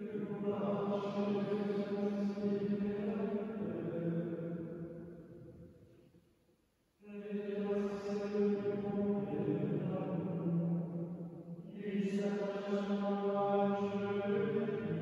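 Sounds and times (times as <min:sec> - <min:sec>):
monks chanting: 0:00.0 - 0:04.3, 0:07.0 - 0:10.6, 0:11.7 - 0:15.0.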